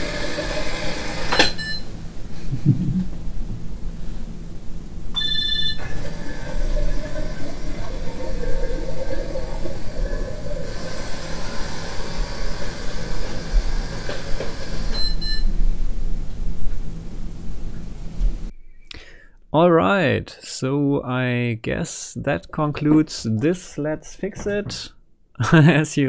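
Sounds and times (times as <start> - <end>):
short electronic beep: 5.2 - 5.9.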